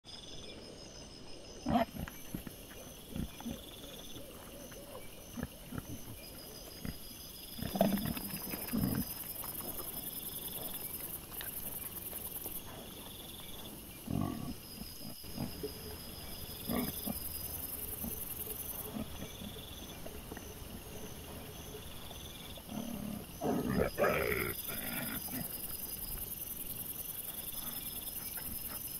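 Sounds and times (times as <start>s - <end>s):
night insects chirring: 0.1s - 28.9s
boar grunting: 5.0s - 21.5s, 22.2s - 25.8s.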